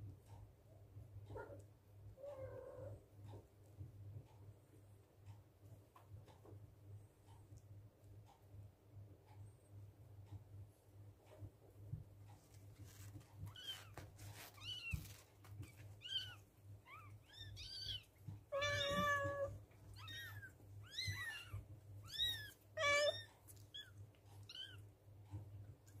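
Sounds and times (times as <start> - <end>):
newborn kittens mewing: 13.4 - 24.9.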